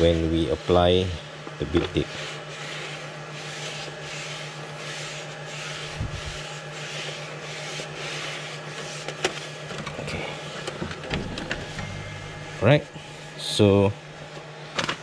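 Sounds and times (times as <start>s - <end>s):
hand rubbing tape: 1.9s - 9.7s.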